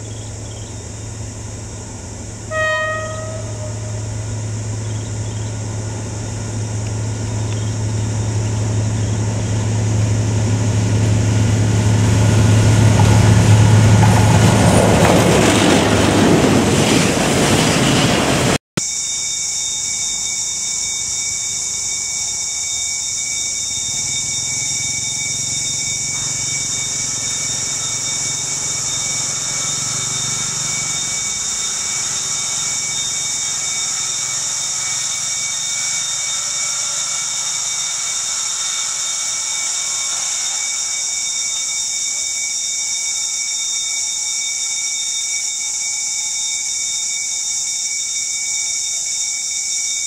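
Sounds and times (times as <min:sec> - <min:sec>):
steady high-pitched hiss: 0:00.0 - 0:11.8, 0:18.8 - 0:50.0
distant locomotive rumble: 0:00.0 - 0:18.6, 0:23.6 - 0:41.4
freight train rolling past: 0:00.1 - 0:18.6, 0:23.7 - 0:41.7.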